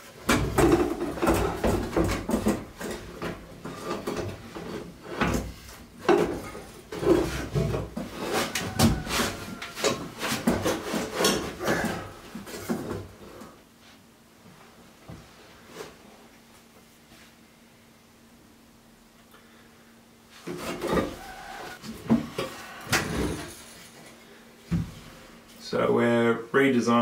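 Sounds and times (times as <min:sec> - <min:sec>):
metal knocking and scraping on wood: 0:00.2 - 0:13.1.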